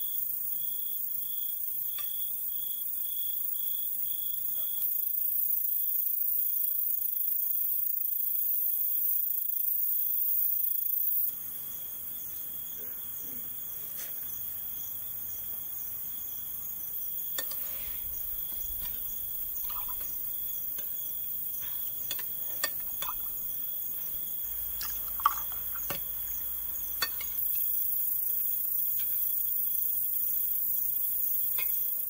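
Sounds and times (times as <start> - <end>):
crickets chirping: 0.0 - 32.0
clinks of glasses and cutlery: 17.4 - 17.8, 21.6 - 23.5, 27.0 - 27.4.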